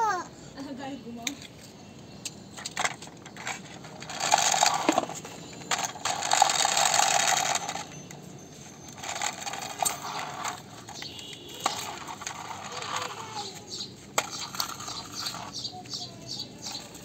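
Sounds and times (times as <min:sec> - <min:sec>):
toy helicopter rotor whirring: 0:02.7 - 0:17.0.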